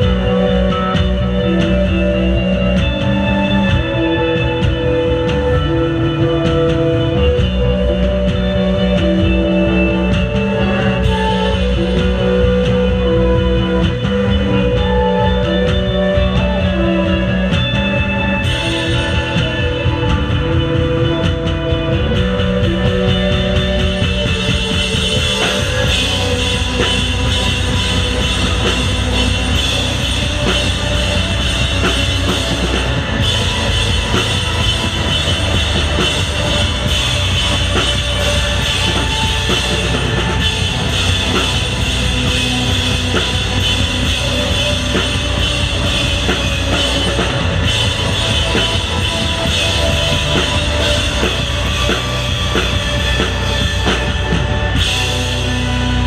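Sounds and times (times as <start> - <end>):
live rock band playing: 0.0 - 56.0.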